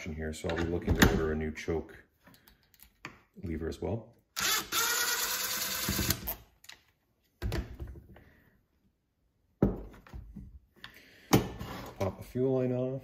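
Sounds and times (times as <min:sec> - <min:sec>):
power drill whirring: 0:04.4 - 0:06.4
knocks of tools and parts: 0:09.6 - 0:10.5.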